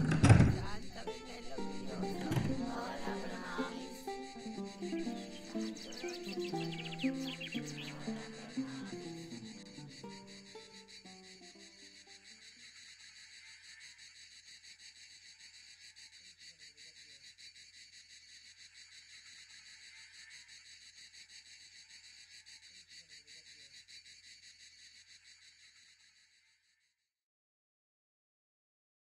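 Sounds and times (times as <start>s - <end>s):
insects chirring: 0.0s - 27.0s.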